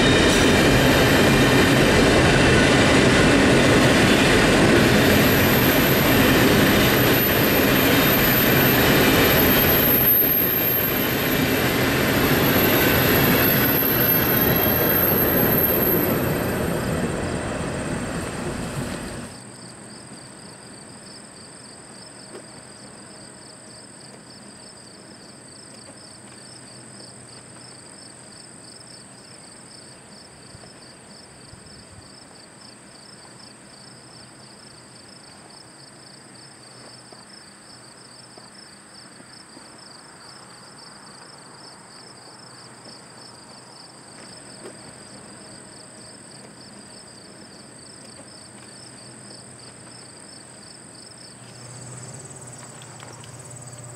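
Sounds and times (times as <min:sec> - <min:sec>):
faint train rumble: 0:00.0 - 0:28.4, 0:29.1 - 0:53.9
insects trilling: 0:43.5 - 0:53.9
high steady insect buzz: 0:49.9 - 0:53.9.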